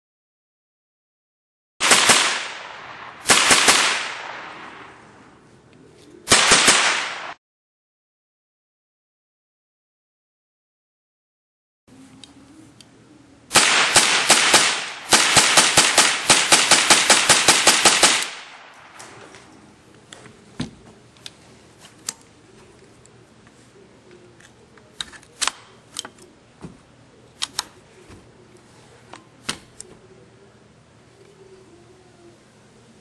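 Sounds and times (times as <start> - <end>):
rifle firing full-auto bursts: 1.8 - 5.0, 6.3 - 7.4, 13.5 - 19.0.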